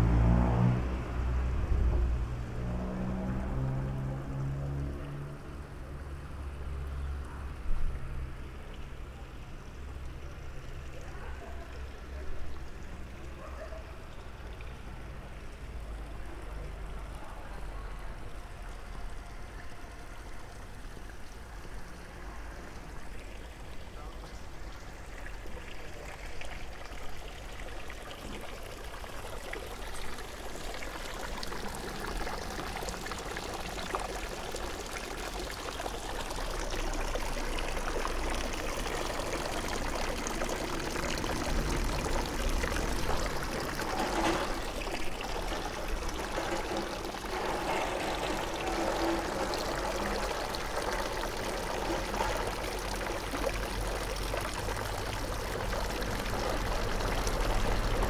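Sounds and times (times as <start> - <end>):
running water rushing: 20.1 - 58.0.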